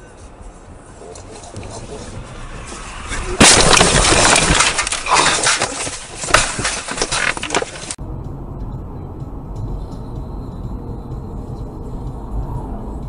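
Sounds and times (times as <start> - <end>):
low road hum: 0.0 - 13.0
knocks and crashing: 1.3 - 8.0
car crash impact: 2.4 - 8.0.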